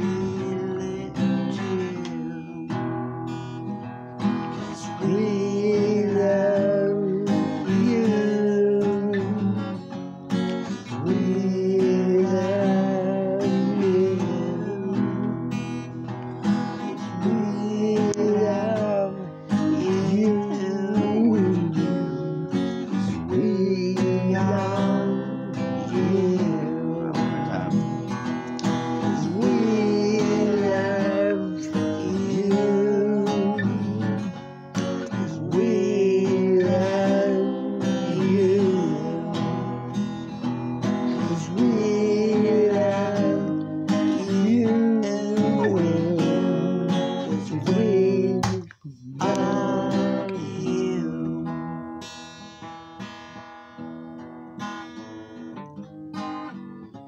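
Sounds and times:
wordless singing: 0.0 - 3.2, 4.6 - 9.6, 10.8 - 15.6, 16.8 - 28.0, 28.7 - 51.9
acoustic guitar strumming: 0.0 - 57.0
picked guitar notes: 0.0 - 57.0.

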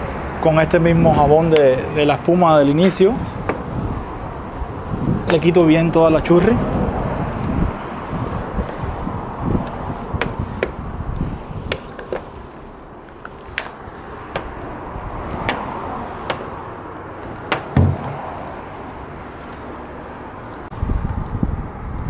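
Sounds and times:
foam brush scrubbing car: 2.8 - 19.8
dull thump: 17.5 - 18.5.

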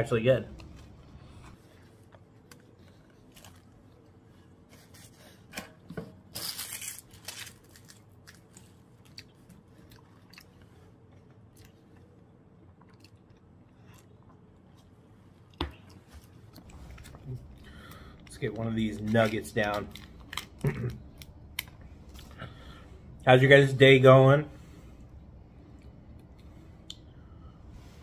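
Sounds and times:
person chewing food: 0.6 - 4.6, 8.2 - 18.3
paper wrapper rustling: 6.4 - 8.7.

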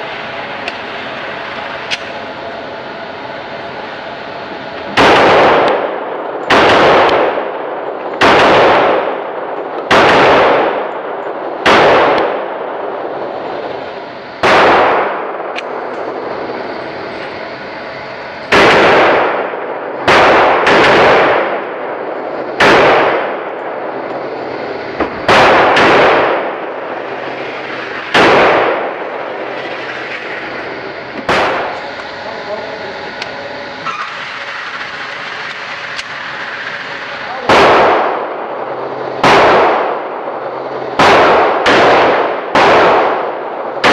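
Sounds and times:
pistol shots echoing indoors: 5.0 - 12.7, 14.4 - 15.6, 18.5 - 21.9, 22.6 - 23.6, 25.0 - 29.0, 37.5 - 38.4, 39.2 - 40.1, 41.0 - 43.9.

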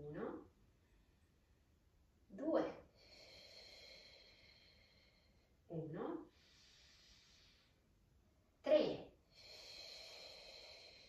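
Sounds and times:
woman speaking: 0.0 - 0.4, 2.3 - 2.8, 5.7 - 6.3, 8.6 - 9.1.

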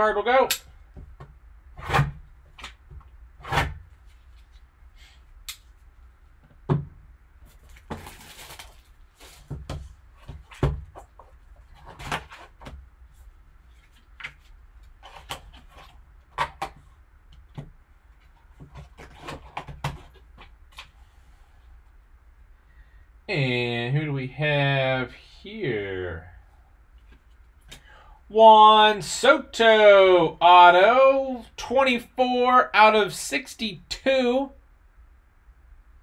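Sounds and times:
shrink wrap crinkling: 7.4 - 9.5.

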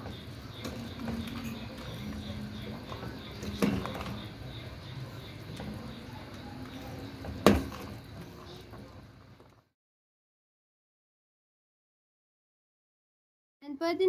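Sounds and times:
metal ladle stirring stew in pot: 0.5 - 4.8.

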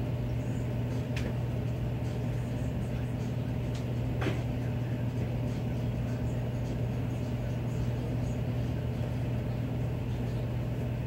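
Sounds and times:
furnace low hum: 0.0 - 11.0.

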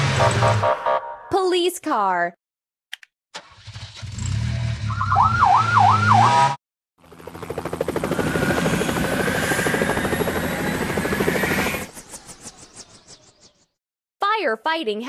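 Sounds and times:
siren warbling: 0.2 - 1.3, 4.8 - 6.6, 7.9 - 12.4
police car engine: 4.6 - 6.6
helicopter engine whine: 7.0 - 13.1
helicopter rotor chopping: 7.0 - 13.1.

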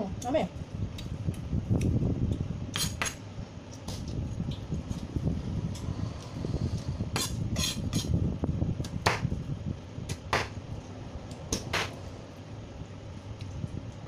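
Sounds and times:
low steady hum: 0.0 - 14.0
knife chopping on cutting board: 9.0 - 9.3, 10.1 - 10.6, 11.6 - 12.0.

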